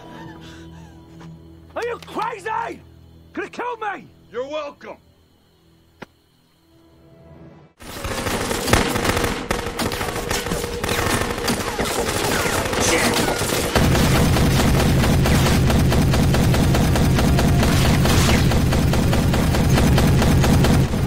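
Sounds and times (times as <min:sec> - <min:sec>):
rapid automatic gunfire: 0:07.8 - 0:21.0.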